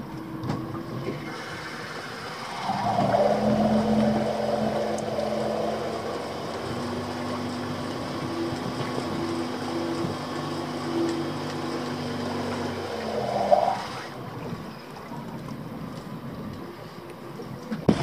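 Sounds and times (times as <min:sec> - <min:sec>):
electric outboard motor whine: 0:00.0 - 0:14.4.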